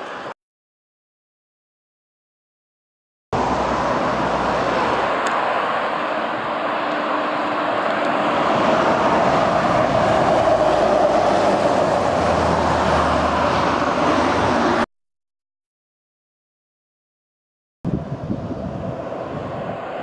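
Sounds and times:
passing road traffic: 0:00.0 - 0:00.4, 0:03.4 - 0:14.9, 0:17.9 - 0:20.0
lorry driving past: 0:03.4 - 0:14.9.

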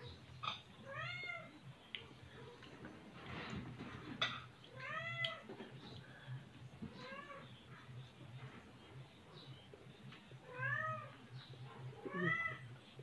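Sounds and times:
cat meowing: 0:12.0 - 0:12.7.

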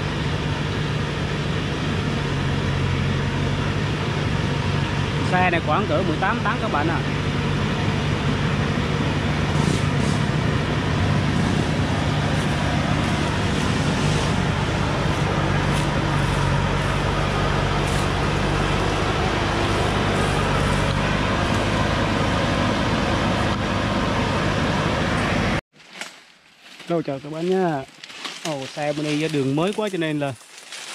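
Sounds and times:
diesel truck engine running: 0:00.0 - 0:25.6.

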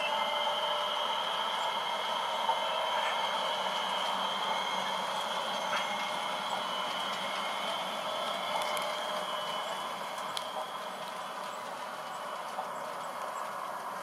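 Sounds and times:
model train motor whine: 0:00.0 - 0:14.0
wheels rolling hiss: 0:00.0 - 0:14.0
faint clicks: 0:05.1 - 0:14.0.

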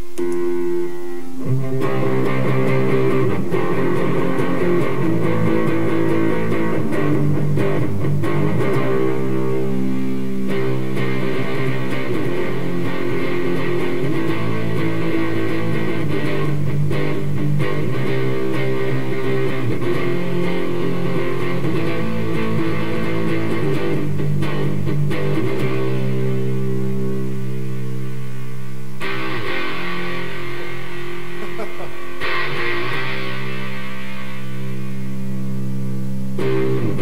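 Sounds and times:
distorted electric guitar: 0:00.0 - 0:37.0.

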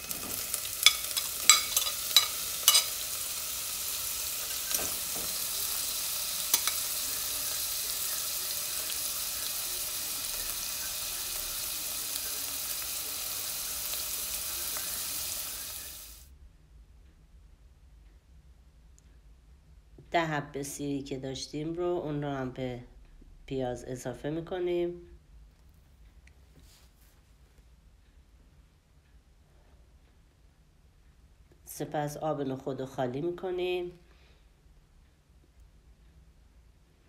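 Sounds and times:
onion sizzling in hot oil: 0:00.0 - 0:16.3
metal spoon clinking on pot: 0:00.1 - 0:03.1, 0:06.5 - 0:06.9.

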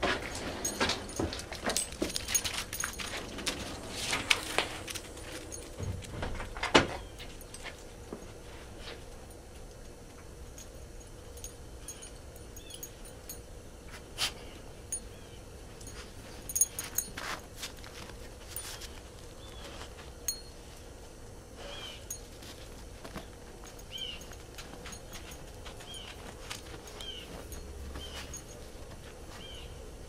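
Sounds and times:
light clicks and jingles: 0:00.0 - 0:20.9, 0:22.0 - 0:29.8
faint steady hum: 0:00.0 - 0:30.0.

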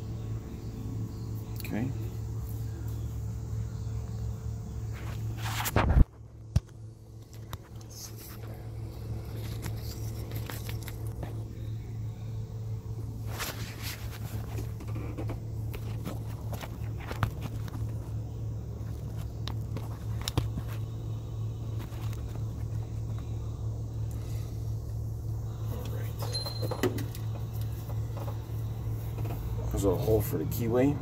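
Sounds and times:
steady low hum: 0:00.0 - 0:31.0
rustling and scraping handling noise: 0:04.9 - 0:06.3, 0:07.2 - 0:11.5, 0:13.2 - 0:21.0, 0:21.7 - 0:23.3.

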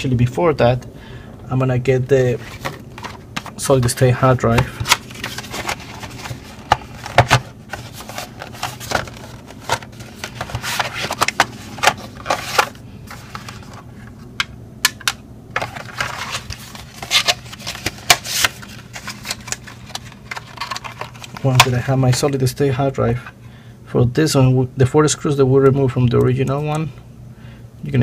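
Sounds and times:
packaging clicks and scrapes: 0:02.4 - 0:03.6, 0:04.5 - 0:14.2, 0:15.6 - 0:21.8
cardboard box being opened: 0:04.6 - 0:13.8.

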